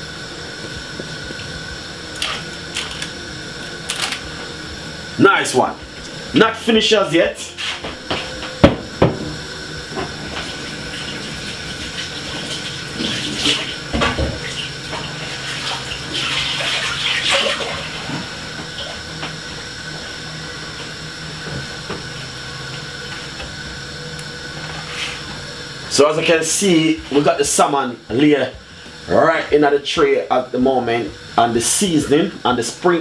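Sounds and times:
water running from a tap: 10.4 - 18.0.

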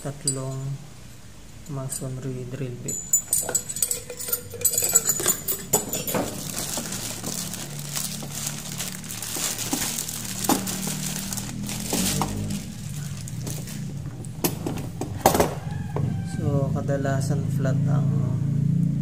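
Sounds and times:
plastic bag crinkling: 3.2 - 15.0.

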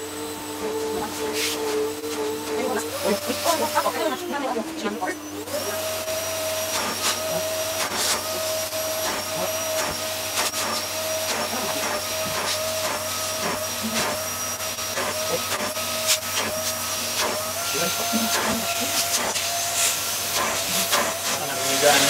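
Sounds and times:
vacuum cleaner running: 0.0 - 22.0
nozzle scuffing on fabric: 1.3 - 1.8.

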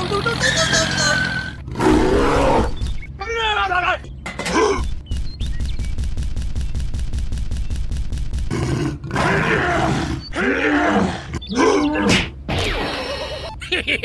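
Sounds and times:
monster roars and growls: 1.7 - 2.8, 8.5 - 12.1.

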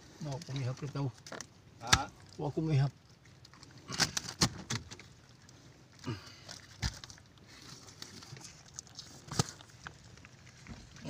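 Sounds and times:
wet slaps and knocks: 1.8 - 2.1.

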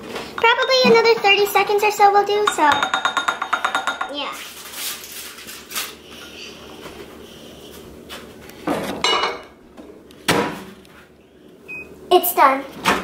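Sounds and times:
bowl knocking and clattering: 2.4 - 4.2.

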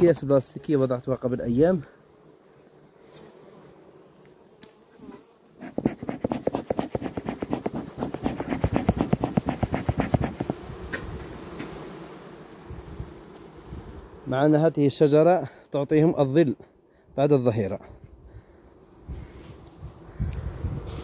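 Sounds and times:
honeybees buzzing: 0.0 - 15.4, 18.1 - 21.0
bee smoker puffing: 4.5 - 14.7.

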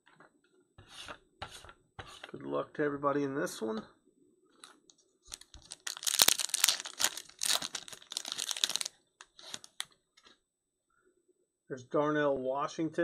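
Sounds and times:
foil wrapper crinkling and tearing: 5.3 - 9.9.

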